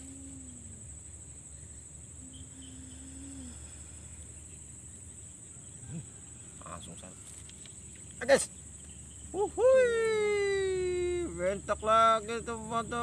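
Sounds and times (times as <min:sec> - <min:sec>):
low hum: 0:00.0 - 0:06.8
high-pitched insect chorus: 0:00.0 - 0:13.0.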